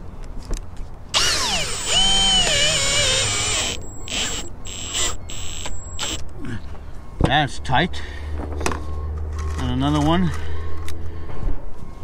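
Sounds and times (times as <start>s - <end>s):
cordless drill drilling metal: 1.2s - 6.2s
drill trigger bursts: 1.2s - 6.2s.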